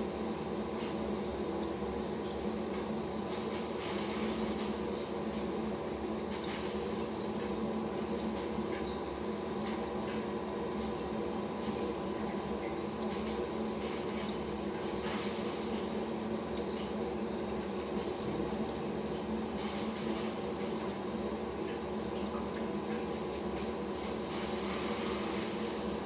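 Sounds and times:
moving water: 0.0s - 26.0s.

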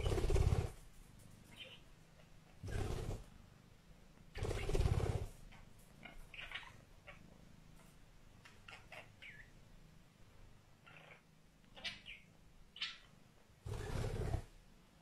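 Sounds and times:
wing flutter: 0.0s - 1.6s, 2.6s - 3.3s, 4.3s - 5.6s, 13.7s - 14.6s.

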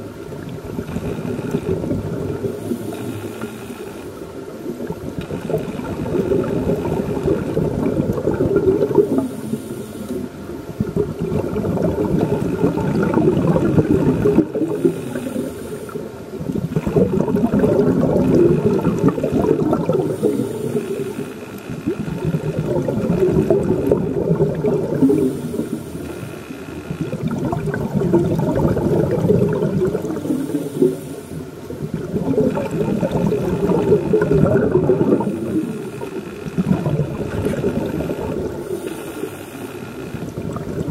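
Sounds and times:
regulator inhalation hiss: 2.4s - 4.2s, 8.9s - 10.5s, 14.5s - 16.2s, 19.3s - 22.2s, 25.0s - 27.1s, 30.1s - 31.6s, 35.2s - 36.7s, 37.8s - 40.3s
regulator bubbling exhalations: 4.7s - 40.9s.

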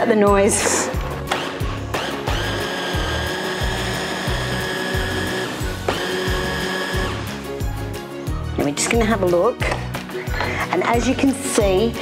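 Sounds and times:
background music with a beat: 0.7s - 12.0s
hand blender motor whirring: 1.2s - 7.4s.

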